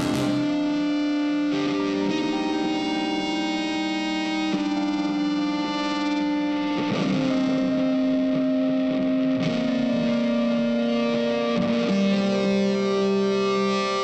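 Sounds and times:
slow held music chords: 0.0s - 2.8s.

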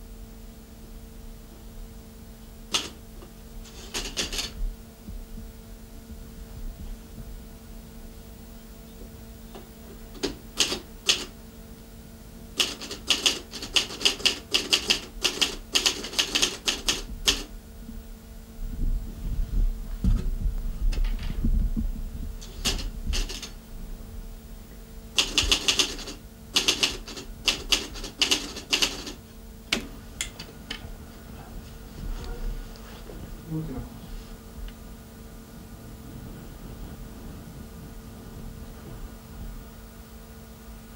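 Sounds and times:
low electrical hum: 0.0s - 40.9s
typewriter key strikes: 2.7s - 3.0s, 3.7s - 4.6s, 10.2s - 11.3s, 12.6s - 17.5s, 22.4s - 23.6s, 25.2s - 29.2s.

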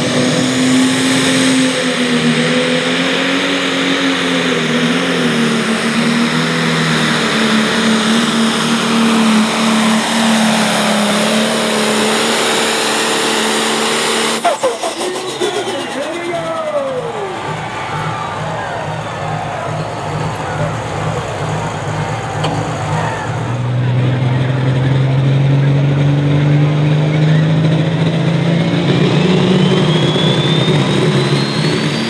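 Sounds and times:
diesel tractor engine running flat out: 0.0s - 32.0s
engine winding down with whines: 0.0s - 32.0s.

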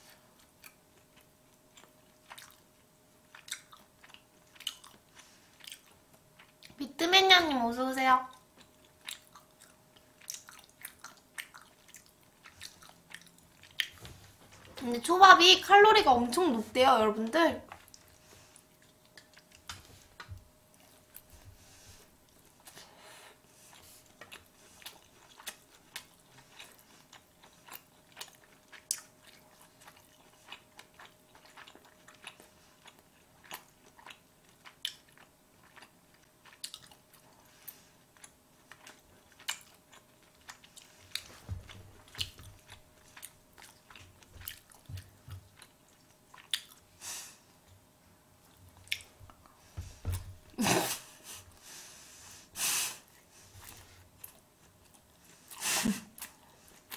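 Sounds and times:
faint steady hum: 0.0s - 56.9s
chewing and mouth sounds: 0.1s - 6.8s, 8.2s - 14.8s, 17.6s - 22.9s, 23.6s - 47.0s, 47.6s - 50.6s.

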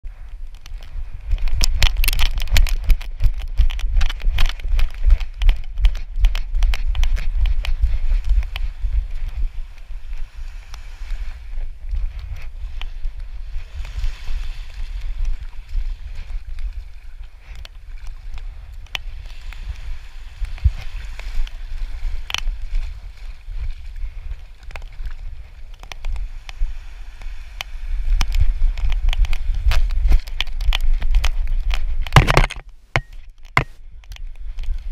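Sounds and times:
wind buffeting microphone: 0.0s - 34.9s
small waves washing on sand: 0.1s - 32.1s.

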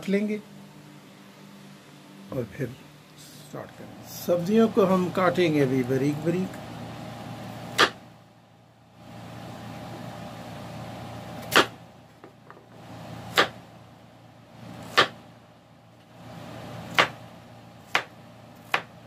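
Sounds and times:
steady low hum: 0.0s - 19.0s
knife chopping on wooden board: 7.8s - 8.0s, 11.4s - 11.8s, 13.3s - 13.6s, 14.8s - 15.2s, 16.9s - 17.2s, 17.8s - 19.0s.

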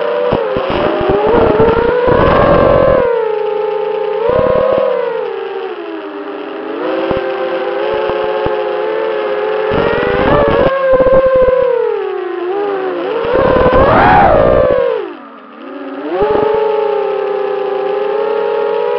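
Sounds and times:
drone motors whining: 0.0s - 18.9s
rushing wind gusts: 0.6s - 3.2s, 9.7s - 11.6s, 13.2s - 15.1s.

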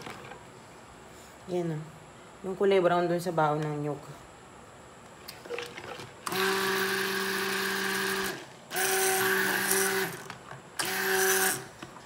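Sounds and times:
stick blender motor hum: 5.9s - 12.0s.

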